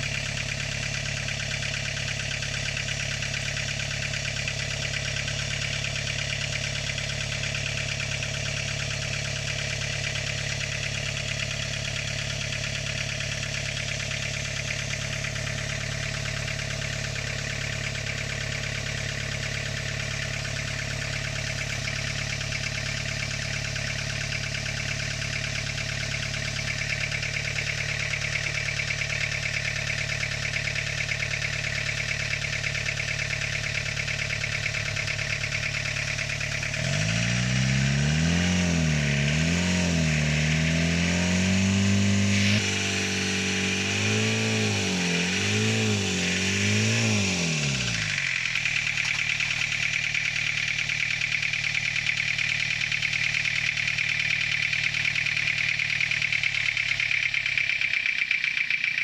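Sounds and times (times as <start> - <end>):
diesel engine idling and revving: 0.0 - 59.0.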